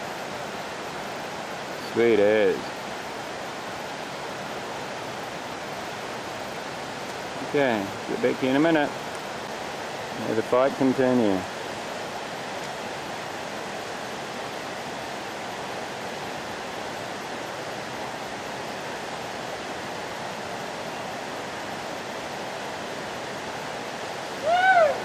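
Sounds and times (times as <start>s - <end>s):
river running over rocks: 0.0s - 25.0s.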